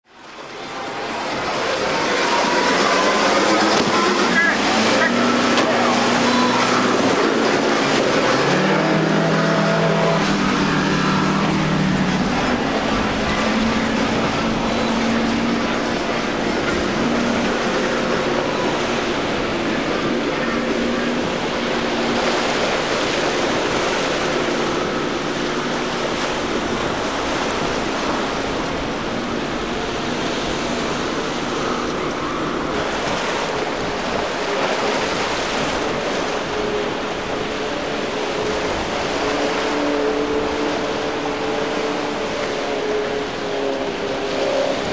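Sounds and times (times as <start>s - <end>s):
boat wake rushing: 0.0s - 44.9s
choppy water: 0.0s - 44.9s
outboard engine humming: 0.0s - 44.9s.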